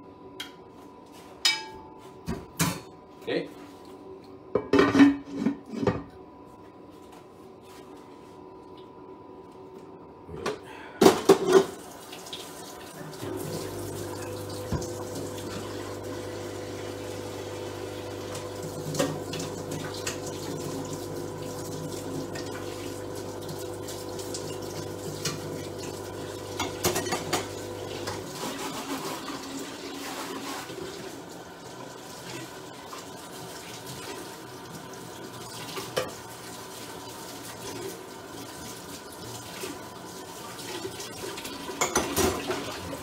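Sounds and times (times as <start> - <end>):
pots and dishes clattering: 4.6 - 6.1, 11.0 - 11.8, 26.6 - 29.4, 41.7 - 42.8
tap running into sink: 14.5 - 15.6.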